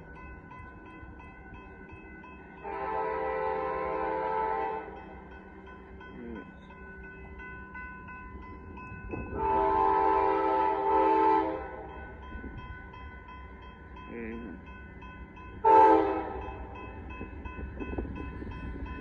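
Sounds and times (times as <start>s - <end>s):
crossing warning bell dinging: 0.0s - 19.0s
train horn blasts: 2.6s - 5.0s, 9.3s - 12.0s, 15.6s - 16.9s.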